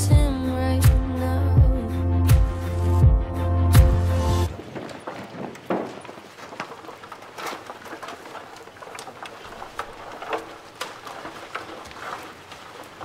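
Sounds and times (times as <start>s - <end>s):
crackling and tapping clicks: 4.5s - 13.0s.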